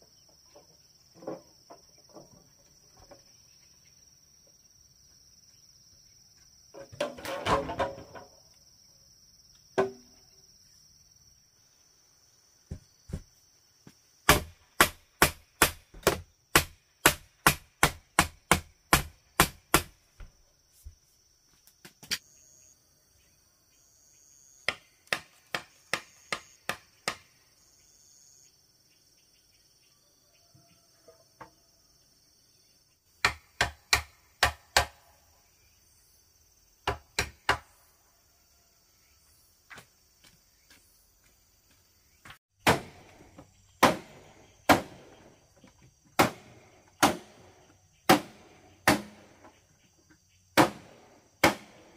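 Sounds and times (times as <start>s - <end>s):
insects droning: 0.0s - 51.9s
sharp blows on bamboo: 14.2s - 20.0s, 24.7s - 27.4s, 33.2s - 35.0s, 36.8s - 37.7s, 42.6s - 43.2s, 43.8s - 45.1s, 46.2s - 49.4s, 50.6s - 51.9s.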